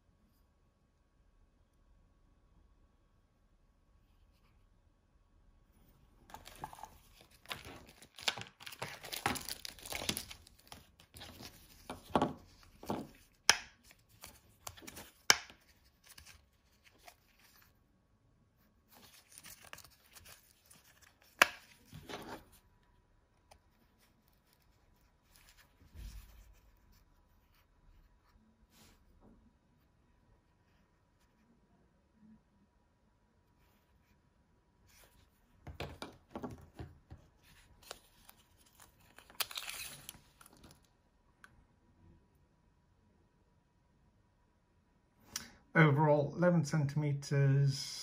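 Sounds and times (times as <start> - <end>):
rustling and rubbing: 5.7 - 17.8, 23.6 - 29.2.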